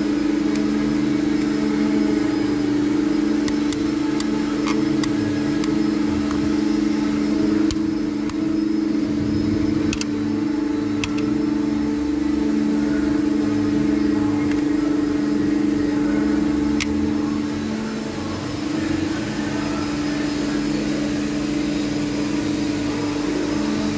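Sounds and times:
woodworking machine humming: 0:00.0 - 0:23.9
sharp clicks: 0:09.9 - 0:10.2.

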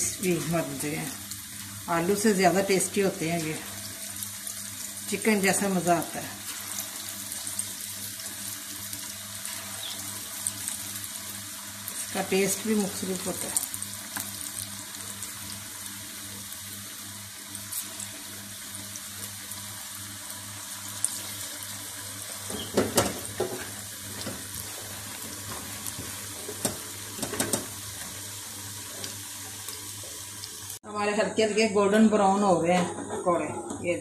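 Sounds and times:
food deep-frying in oil: 0:00.0 - 0:31.1
oil crackles: 0:06.0 - 0:15.6, 0:20.8 - 0:30.8.

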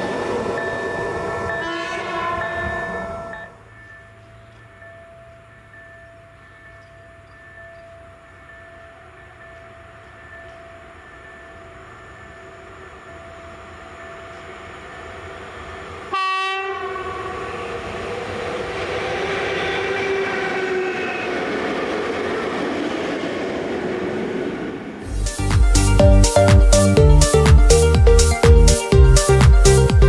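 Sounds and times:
train running past: 0:00.0 - 0:30.0
train horn blast: 0:01.5 - 0:03.3, 0:16.1 - 0:17.8.

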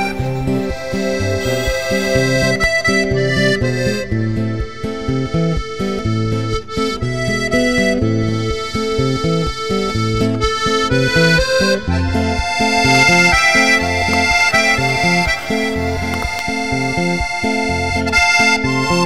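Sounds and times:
bass line: 0:00.0 - 0:18.2
instrumental tune with reedy notes: 0:00.0 - 0:19.0.

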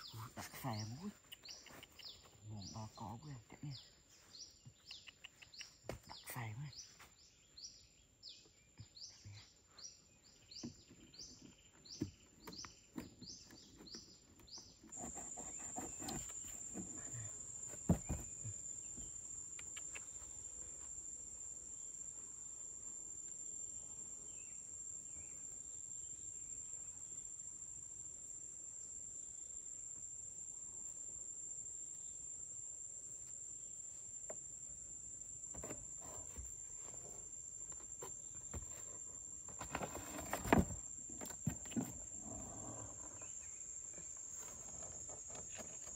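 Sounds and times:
insects droning: 0:00.0 - 0:45.9
cardboard and string rustling: 0:38.0 - 0:42.0.

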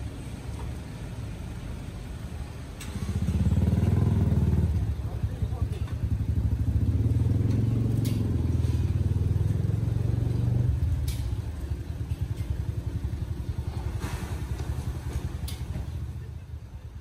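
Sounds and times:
vehicle engine pulsing rumble: 0:00.0 - 0:17.0
light clatters: 0:07.3 - 0:09.8, 0:10.7 - 0:16.2.

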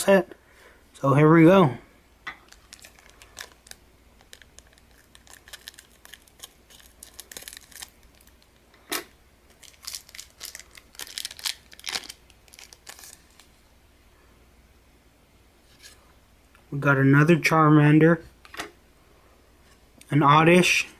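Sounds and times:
foil wrapper crinkling: 0:02.4 - 0:08.7, 0:09.5 - 0:13.6
scissors cutting foil wrapper: 0:02.5 - 0:08.4.

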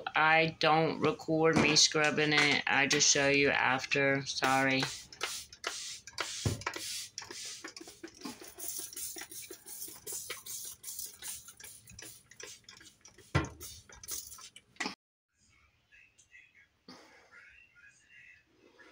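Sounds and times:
spray bottle clicking and hissing: 0:04.4 - 0:14.7.

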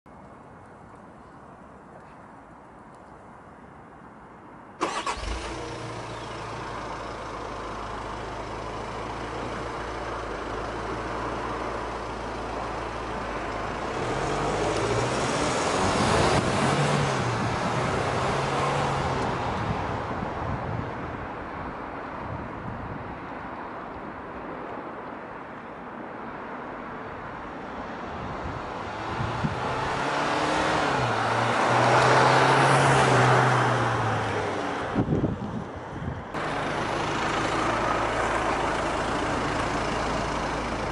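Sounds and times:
diesel engine starting and idling: 0:04.8 - 0:14.7, 0:36.4 - 0:40.9
truck revving and driving off: 0:04.8 - 0:20.2, 0:28.8 - 0:35.1, 0:36.4 - 0:40.9.

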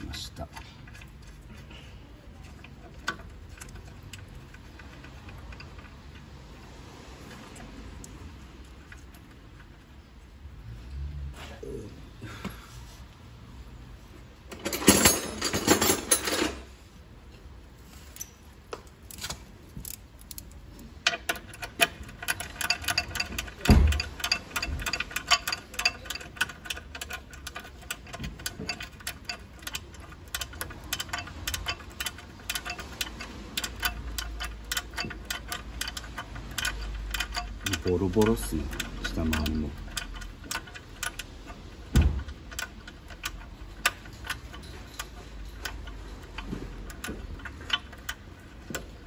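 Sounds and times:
metal clatter: 0:14.5 - 0:16.7, 0:19.0 - 0:49.0
hand ratchet clicking: 0:19.1 - 0:49.0.

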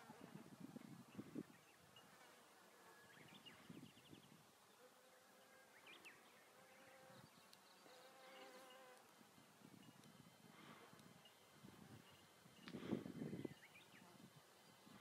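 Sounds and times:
insect wings buzzing: 0:06.4 - 0:15.0.

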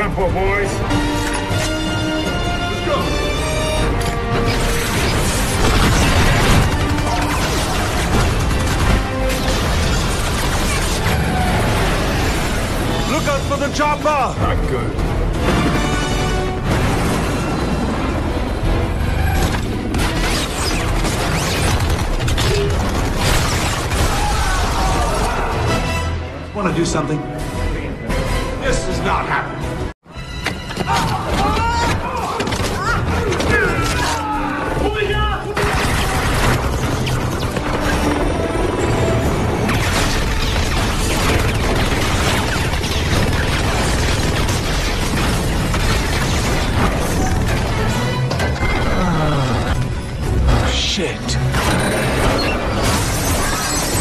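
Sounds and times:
film music score: 0:00.0 - 0:54.0
explosions and impacts: 0:04.5 - 0:13.1, 0:15.0 - 0:25.3, 0:39.2 - 0:49.0.

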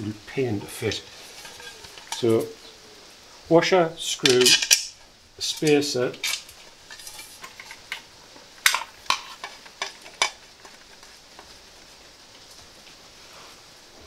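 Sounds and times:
metal parts clinking: 0:04.2 - 0:07.9.

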